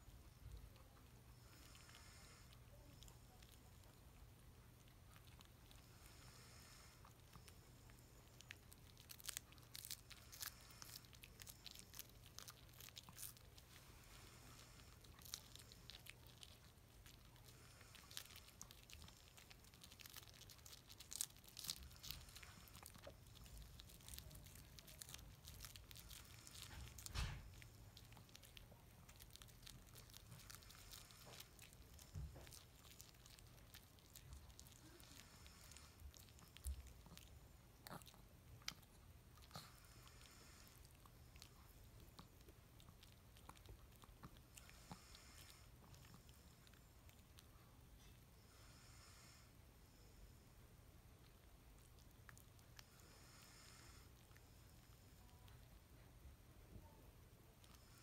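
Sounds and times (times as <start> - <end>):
dog crunching cabbage leaf: 8.3 - 47.4.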